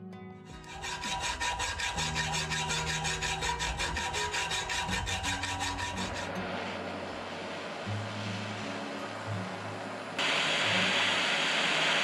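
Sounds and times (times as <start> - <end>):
rasp filing metal wrench: 0.6 - 6.7.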